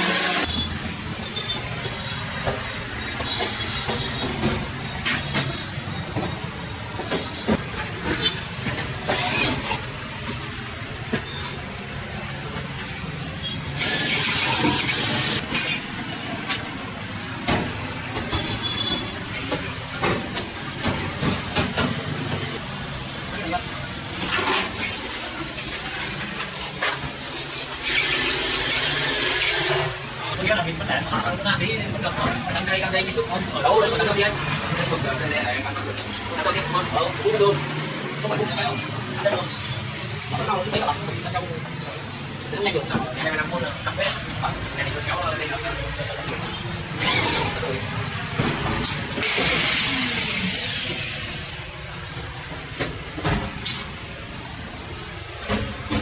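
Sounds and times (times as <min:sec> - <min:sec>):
corded drill running: 0:13.8 - 0:15.4, 0:27.8 - 0:29.9.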